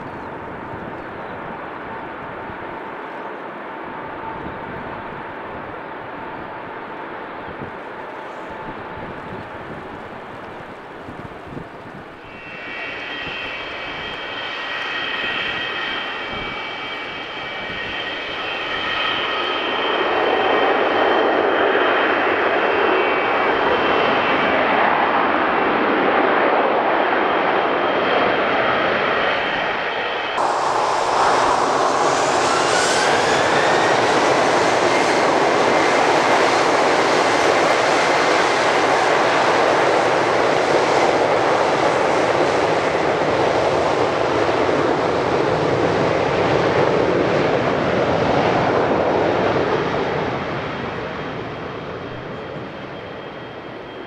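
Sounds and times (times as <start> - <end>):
jet engines reverse thrust roar: 0.0 - 54.0
jet engines running: 0.0 - 54.0.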